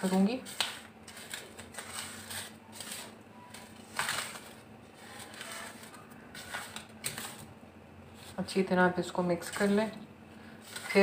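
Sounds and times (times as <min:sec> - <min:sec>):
hands rubbing flour in metal bowl: 0:10.6 - 0:11.0.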